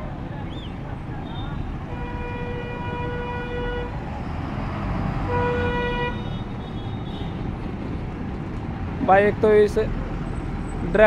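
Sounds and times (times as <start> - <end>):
bus engine rumble: 0.0 - 11.0
bus horn blasts: 1.9 - 4.0, 5.2 - 7.4.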